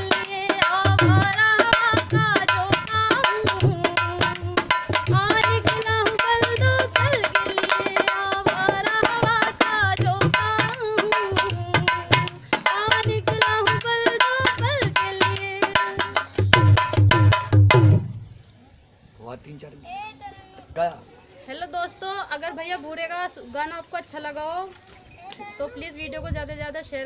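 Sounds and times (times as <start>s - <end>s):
hand drum playing fast: 0.0s - 18.1s.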